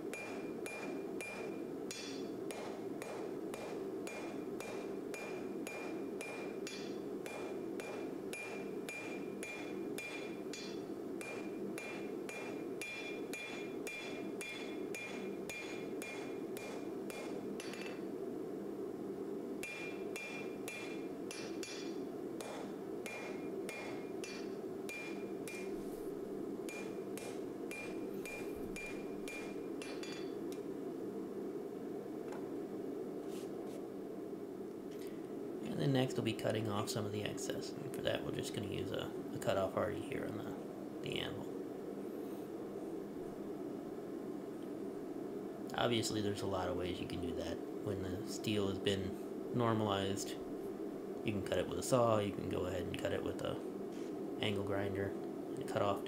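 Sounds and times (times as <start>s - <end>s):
hammer striking steel on anvil: 0.1s - 18.0s, 19.6s - 25.8s, 26.7s - 30.4s.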